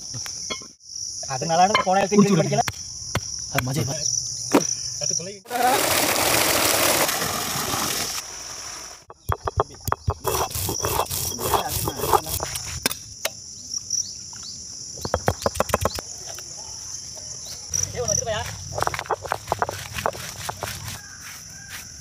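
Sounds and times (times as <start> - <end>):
insects droning: 0.0 - 22.0
stone roller pounding on slab: 9.1 - 12.5, 15.0 - 16.0, 18.7 - 21.0.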